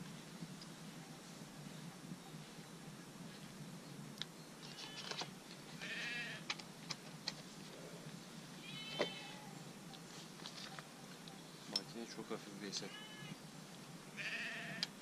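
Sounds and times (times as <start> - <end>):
animal calling: 12.8 - 13.4.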